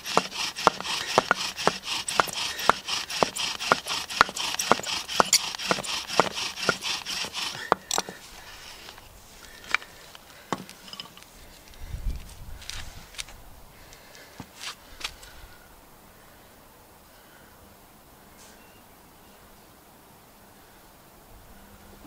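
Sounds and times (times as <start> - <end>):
bow drill rasping: 0.0 - 11.8.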